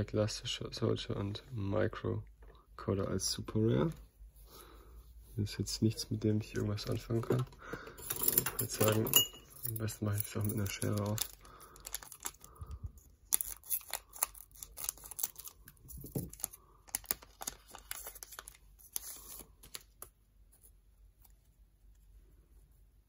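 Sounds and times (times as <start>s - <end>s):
scissors cutting foil wrapper: 10.5s - 12.5s, 13.2s - 18.6s
foil wrapper crinkling and tearing: 10.6s - 20.1s.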